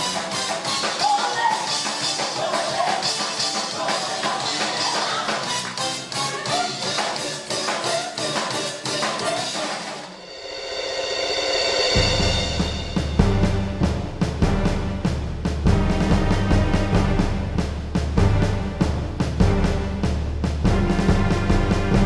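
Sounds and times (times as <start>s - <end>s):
drum kit: 0.0s - 22.0s
person singing: 1.0s - 5.6s, 6.2s - 9.8s.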